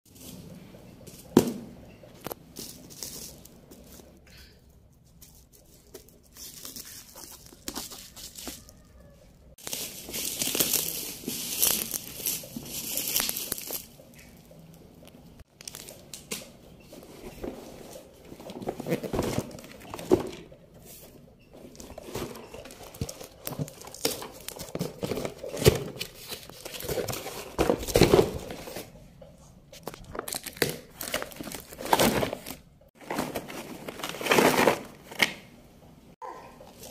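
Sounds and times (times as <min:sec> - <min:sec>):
bubble wrap crinkling and tearing: 0:05.2 - 0:14.3, 0:29.8 - 0:35.2.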